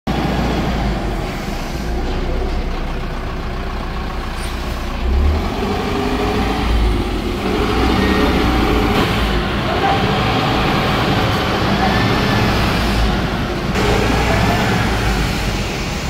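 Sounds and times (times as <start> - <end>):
diesel bus engine rumbling: 0.1 - 16.0.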